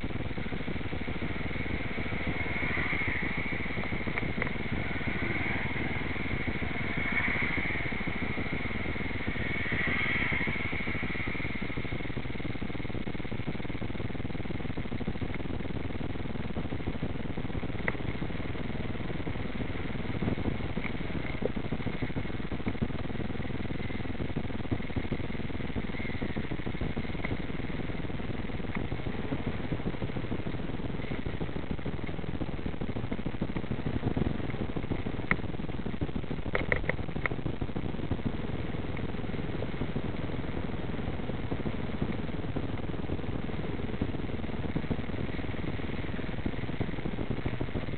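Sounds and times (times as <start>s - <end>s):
faint whine: 0.0s - 47.9s
traffic rumble: 0.0s - 47.9s.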